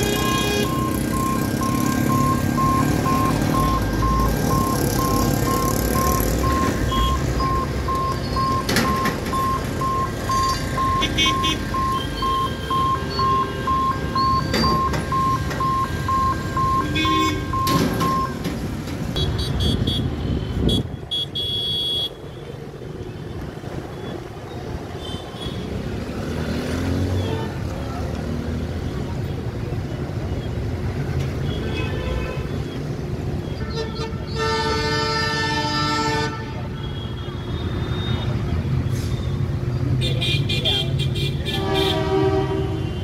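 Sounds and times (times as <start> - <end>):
level crossing hooter beeping: 0.0 - 18.5
road traffic noise: 0.0 - 43.0
vehicle horn toots: 16.8 - 17.6, 19.2 - 22.2, 40.2 - 43.0.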